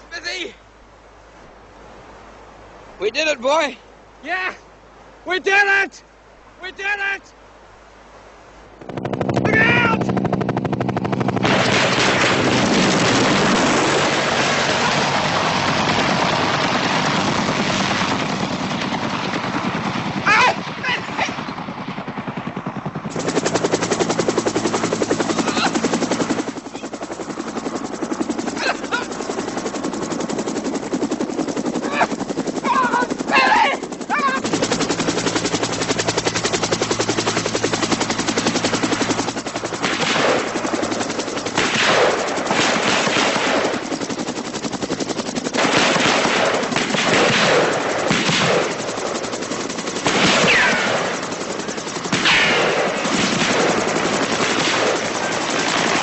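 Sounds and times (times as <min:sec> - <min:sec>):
helicopter rotor thudding: 0:08.7 - 0:56.0
machine-gun fire: 0:08.8 - 0:15.6, 0:39.8 - 0:40.5, 0:41.5 - 0:43.8, 0:45.6 - 0:48.8, 0:50.0 - 0:51.2, 0:52.1 - 0:56.0.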